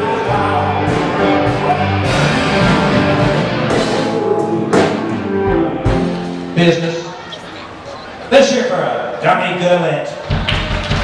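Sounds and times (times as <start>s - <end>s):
live rock band playing: 0.0s - 7.3s.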